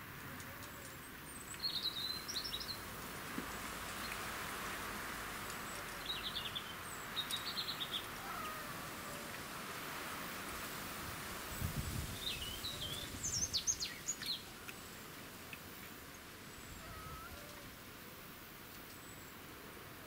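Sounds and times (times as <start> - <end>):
outdoor background hiss: 0.0 - 20.0
small birds chirping: 0.2 - 9.4, 11.5 - 17.8.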